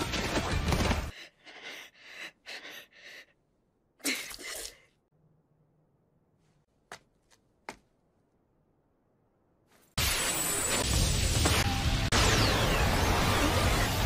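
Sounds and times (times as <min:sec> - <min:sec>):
person panting: 0:00.9 - 0:03.4.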